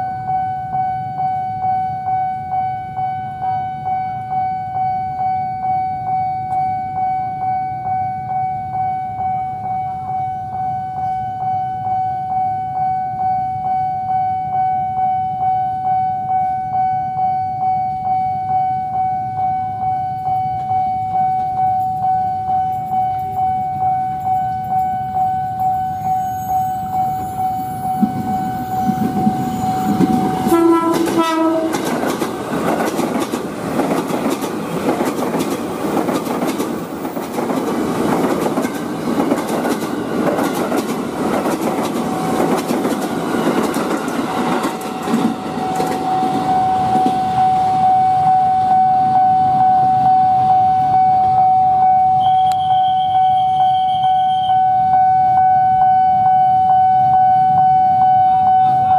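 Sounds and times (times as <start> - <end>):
level crossing warning bell: 0.0 - 58.9
train wheels clattering: 28.0 - 47.2
train horn blast: 28.7 - 32.0.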